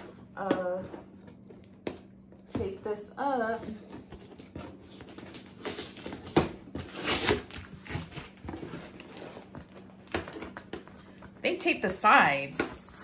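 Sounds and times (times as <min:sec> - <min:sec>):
cardboard rustling: 0:02.6 - 0:11.4.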